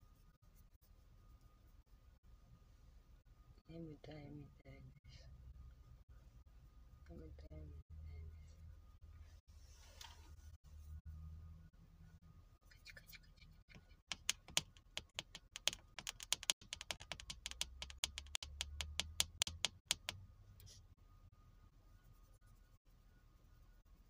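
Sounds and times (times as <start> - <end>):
keyboard typing: 14.0 - 20.2.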